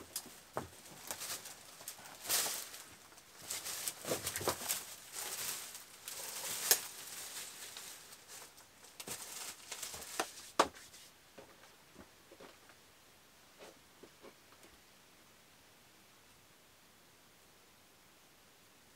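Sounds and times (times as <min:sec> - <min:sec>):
dead branches rustling: 0:00.0 - 0:12.7
branches snapping: 0:00.1 - 0:10.3.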